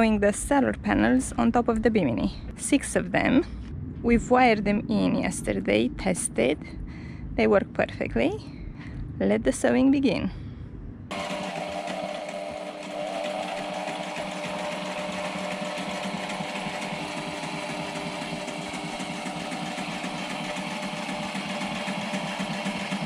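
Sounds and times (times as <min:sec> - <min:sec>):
sewing machine stitching: 0:11.1 - 0:23.0.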